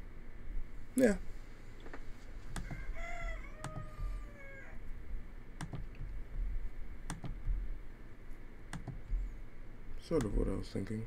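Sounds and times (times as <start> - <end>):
computer mouse clicking: 2.5 - 2.8, 3.6 - 4.0, 5.6 - 6.2, 7.1 - 7.6, 8.7 - 9.2, 10.2 - 10.4
rooster crowing: 2.5 - 4.9.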